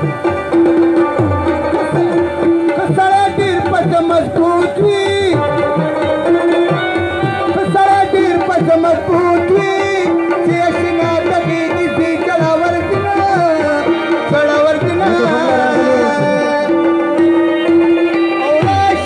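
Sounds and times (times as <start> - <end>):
hand drums in quick rhythm: 0.0 - 17.9
bending melody: 14.7 - 17.5
steady drone note: 15.0 - 16.8.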